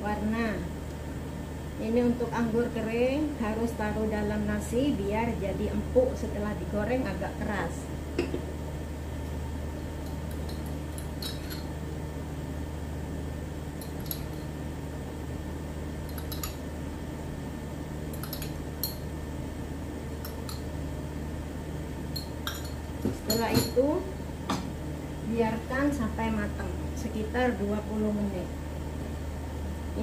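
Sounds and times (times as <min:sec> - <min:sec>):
steady low hum: 0:00.0 - 0:30.0
metal spoon clinking on glass bowl: 0:16.1 - 0:16.6, 0:22.2 - 0:23.8.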